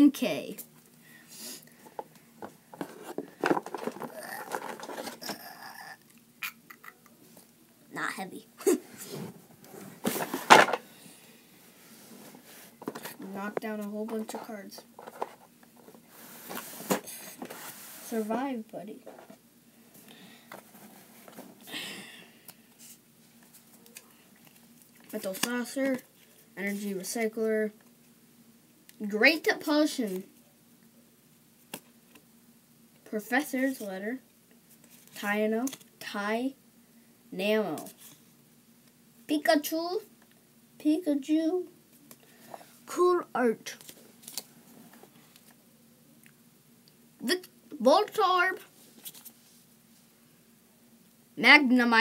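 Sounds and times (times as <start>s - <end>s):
cards scraping and rustling: 2.7s - 5.5s, 12.1s - 18.4s, 22.8s - 26.1s, 43.7s - 45.5s, 48.9s - 49.4s.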